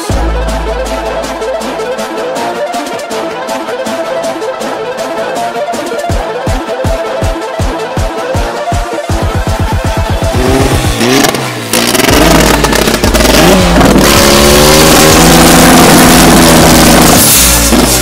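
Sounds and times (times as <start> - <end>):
drag car engine revving: 9.2 - 18.0.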